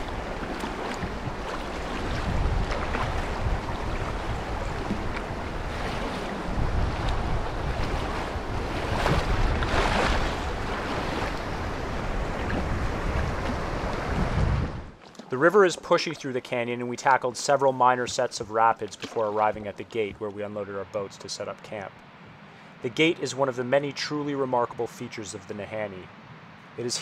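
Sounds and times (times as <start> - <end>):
wind buffeting microphone: 0.0 - 15.0
river water rushing and slapping: 0.0 - 27.0.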